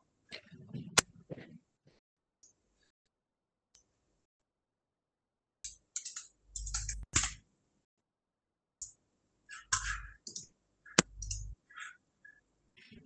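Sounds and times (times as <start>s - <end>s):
laptop clicks and taps: 5.7s - 7.4s.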